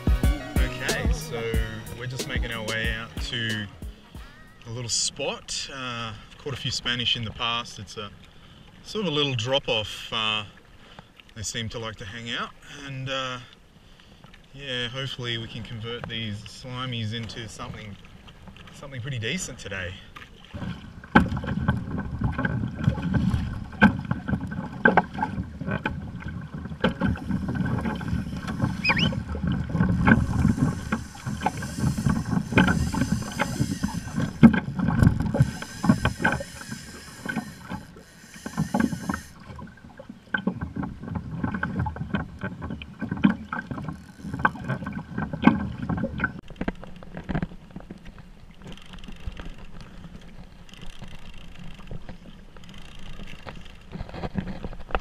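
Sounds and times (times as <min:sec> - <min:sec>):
water sloshing against hull: 0:00.0 - 0:55.0
high hiss: 0:30.3 - 0:34.5.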